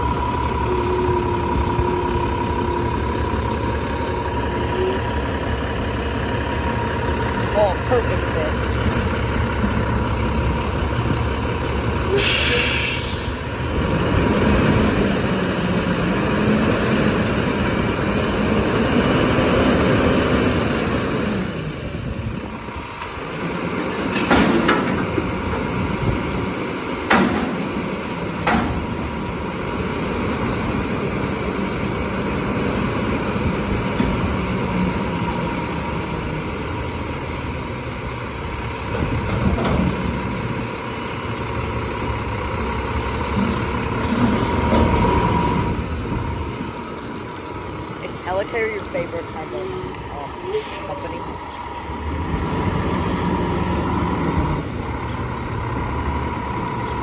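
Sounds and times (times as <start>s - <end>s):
diesel engine revving: 0.0s - 57.0s
air hiss: 12.1s - 13.4s
dumpster banging: 23.8s - 25.9s, 27.0s - 29.2s, 38.8s - 40.6s.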